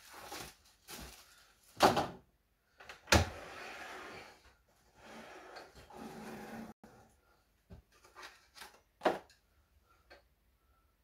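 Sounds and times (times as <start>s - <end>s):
saw base scraping across table: 3.4s - 4.4s, 5.0s - 6.8s.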